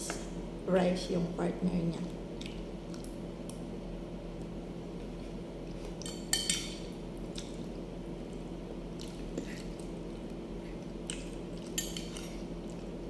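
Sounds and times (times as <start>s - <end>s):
steady low hum: 0.0s - 13.0s
cutlery scraping a plate: 6.0s - 6.8s.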